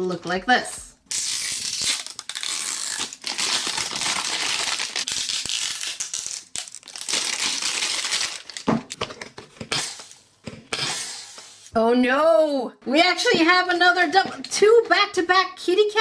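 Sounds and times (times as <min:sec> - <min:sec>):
plastic shrink wrap crinkling: 0:00.0 - 0:10.2.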